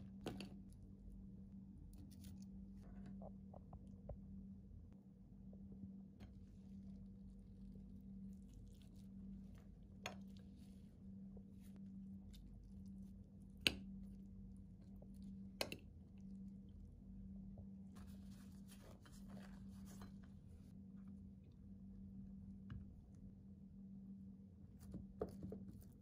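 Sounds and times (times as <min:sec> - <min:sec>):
faint steady hum: 0:00.0 - 0:26.0
flatbread crinkling: 0:17.9 - 0:20.7.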